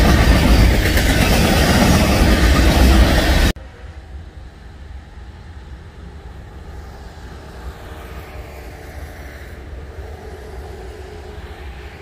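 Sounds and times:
faint hum: 3.6s - 12.0s.

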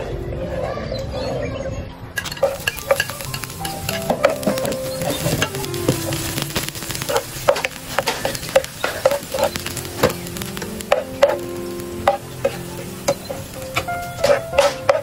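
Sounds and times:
metal ladle scraping a pan: 2.2s - 9.6s, 10.9s - 15.0s
greens sizzling in a pan: 2.2s - 15.0s.

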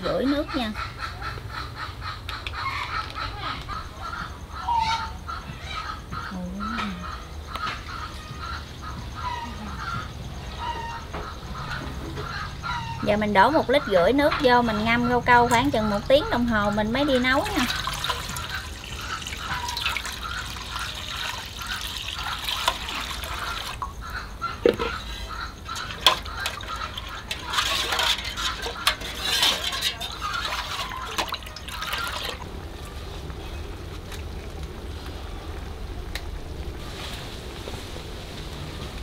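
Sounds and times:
outdoor background: 0.0s - 39.0s
ladle stirring water: 16.6s - 23.9s, 24.7s - 32.5s
water pouring into pot: 17.4s - 23.9s, 25.8s - 32.5s
ladle clinking on pot: 25.8s - 32.3s.

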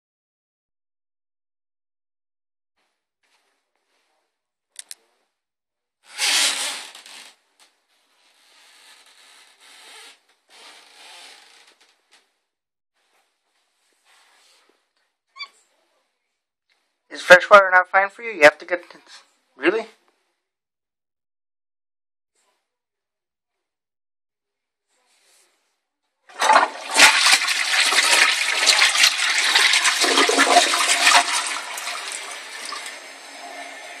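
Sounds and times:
short clicks: 4.8s - 5.0s
toilet flushing: 26.3s - 34.0s.

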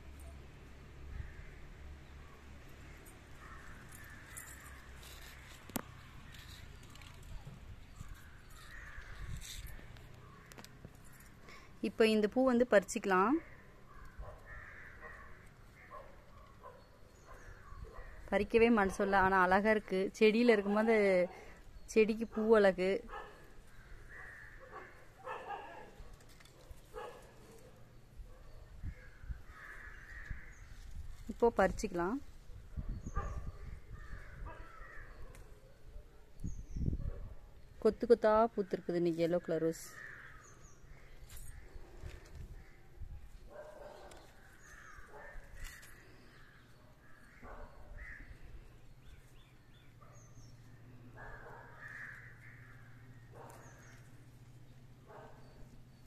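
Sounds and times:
faint harsh bird calls: 13.4s - 18.3s, 23.1s - 31.4s, 32.8s - 37.3s, 39.8s - 56.0s.

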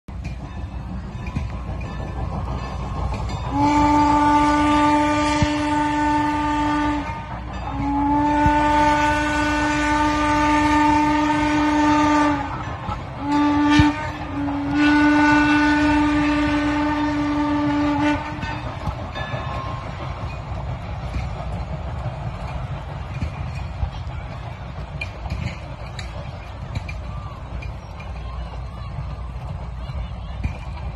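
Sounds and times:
steam whistle blasts: 3.5s - 18.6s.

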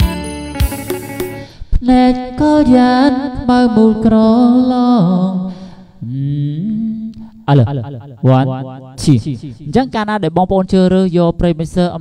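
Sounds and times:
light accompaniment: 0.0s - 1.5s
person singing long notes: 1.3s - 7.6s.

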